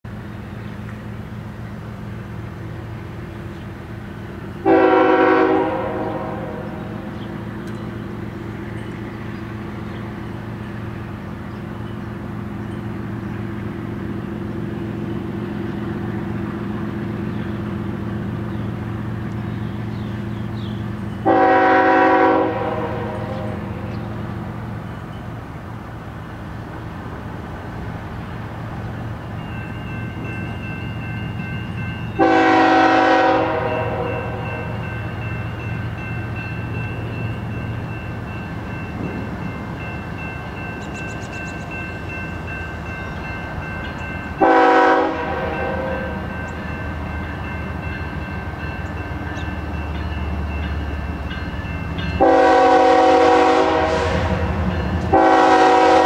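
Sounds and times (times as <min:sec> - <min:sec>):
diesel locomotive engines droning: 0:00.0 - 0:56.0
locomotive horn blasts: 0:04.6 - 0:07.1, 0:21.2 - 0:23.9, 0:32.2 - 0:34.8, 0:44.4 - 0:46.4, 0:52.2 - 0:56.0.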